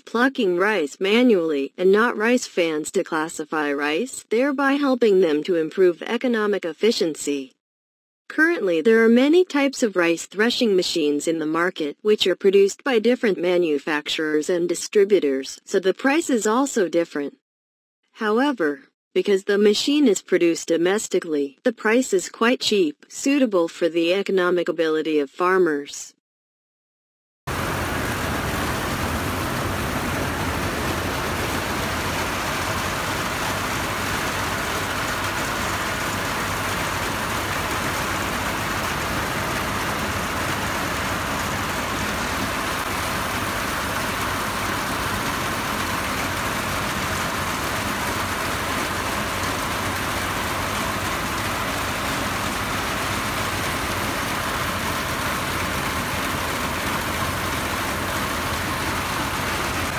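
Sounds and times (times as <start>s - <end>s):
threshing machine droning: 27.5s - 59.9s.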